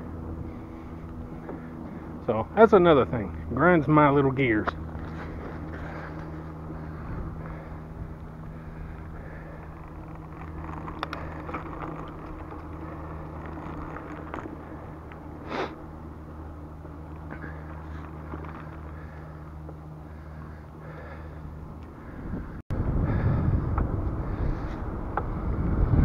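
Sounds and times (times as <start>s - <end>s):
tyres rolling on asphalt: 0.1s - 22.5s
bicycle clicks and rattles: 4.4s - 22.5s.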